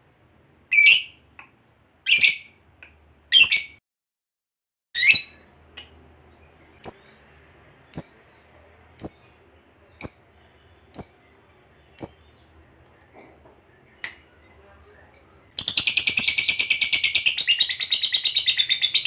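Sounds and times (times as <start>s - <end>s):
high-pitched bird chirps: 0.7s - 1.3s, 2.1s - 2.6s, 3.3s - 3.8s, 5.0s - 5.5s, 6.8s - 12.5s, 13.2s - 19.0s.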